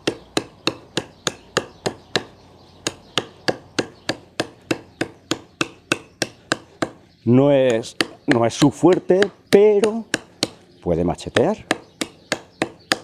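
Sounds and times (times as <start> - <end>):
knife chopping a branch: 0.0 - 13.0.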